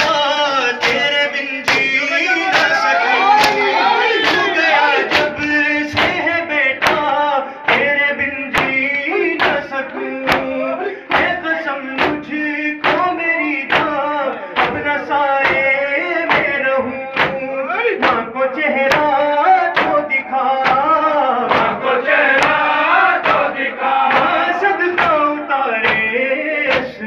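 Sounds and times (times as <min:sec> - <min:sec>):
hands slapping chests: 0:00.0 - 0:07.9, 0:21.5 - 0:23.5, 0:24.1 - 0:24.4
men chanting a lament: 0:00.0 - 0:27.0.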